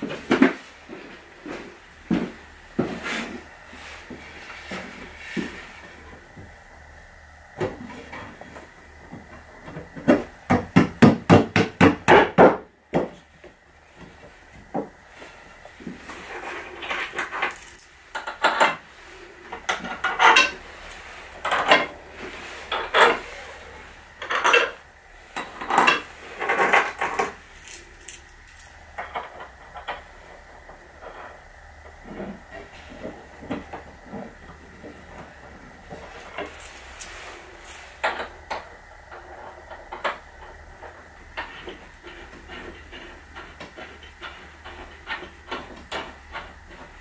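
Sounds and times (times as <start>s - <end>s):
metal clinks: 16.4s - 18.0s, 24.4s - 24.8s, 27.6s - 28.8s, 36.4s - 37.9s.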